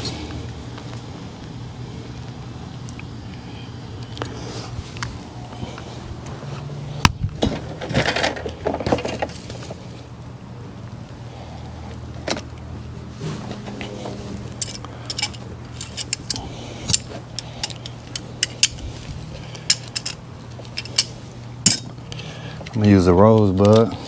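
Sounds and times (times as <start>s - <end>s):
low mechanical hum: 0.0s - 24.0s
metal tools clinking: 14.0s - 24.0s.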